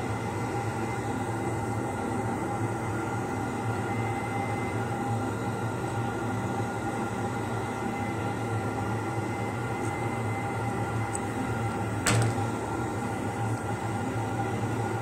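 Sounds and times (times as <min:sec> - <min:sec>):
metal instrument set down on table: 0:12.1 - 0:12.5.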